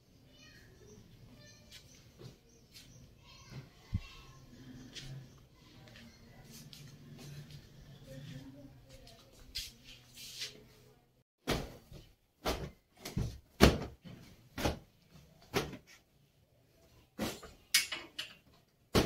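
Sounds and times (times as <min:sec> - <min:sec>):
cloth slapping wooden door: 0:11.4 - 0:14.9.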